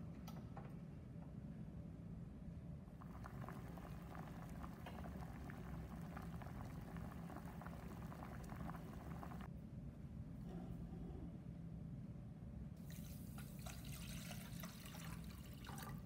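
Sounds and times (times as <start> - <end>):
low hum: 2.8 - 12.7
water boiling in saucepan: 3.0 - 9.5, 12.8 - 16.0.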